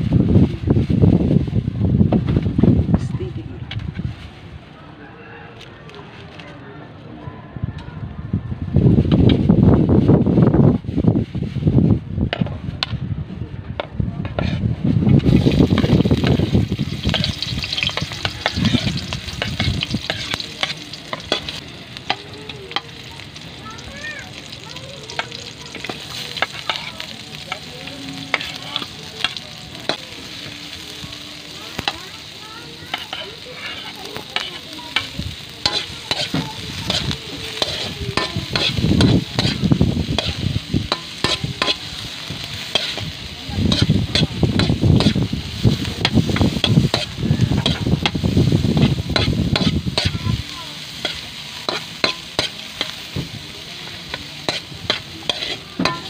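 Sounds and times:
food sauteing in wok: 0:00.0 - 0:04.6, 0:08.8 - 0:13.0, 0:13.8 - 0:56.0
spatula scraping metal wok: 0:14.2 - 0:23.5, 0:24.2 - 0:30.8, 0:31.7 - 0:56.0.

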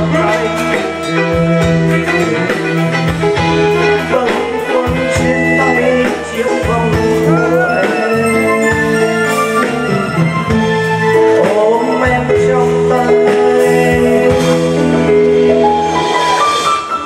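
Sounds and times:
music with steady beat: 0:00.0 - 0:17.0.

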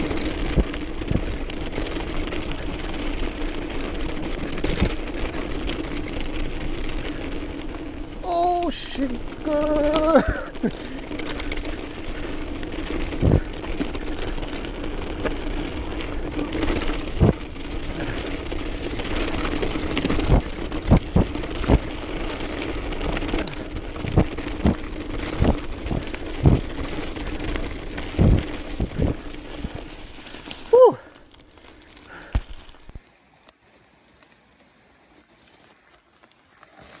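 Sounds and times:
bike knocking and rattling: 0:00.0 - 0:37.0
bike tyres rumbling on gravel: 0:00.0 - 0:37.0.

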